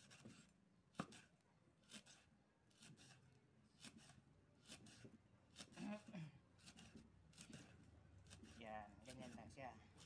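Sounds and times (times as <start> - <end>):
knife chopping on wooden board: 0.0 - 3.2, 6.6 - 9.4.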